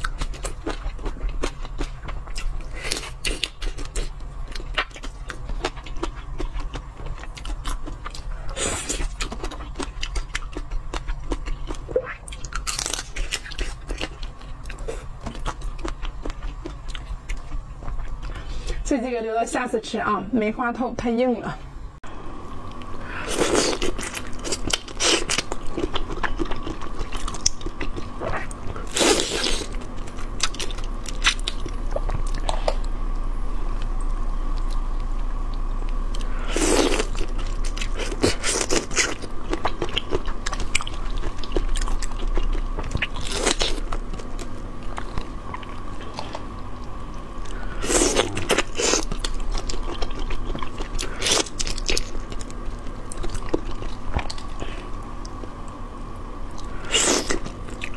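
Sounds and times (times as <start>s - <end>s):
chewing: 0.0s - 18.8s, 23.3s - 32.9s, 35.5s - 55.8s.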